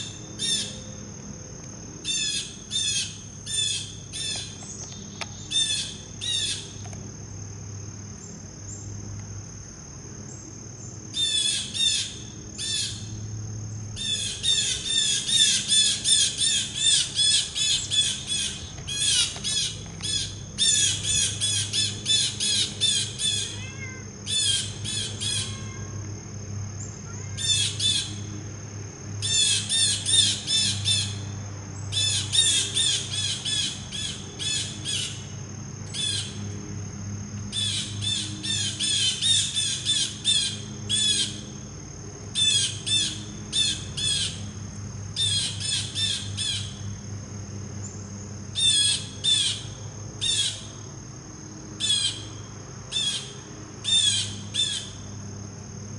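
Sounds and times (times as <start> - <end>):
blue jay calling: 0.0 - 0.8, 2.0 - 6.8, 11.2 - 13.0, 14.0 - 25.8, 27.1 - 28.2, 29.2 - 31.2, 31.9 - 35.3, 35.9 - 36.4, 37.5 - 41.4, 42.4 - 44.4, 45.2 - 46.8, 48.5 - 50.7, 51.8 - 52.3, 52.9 - 55.0.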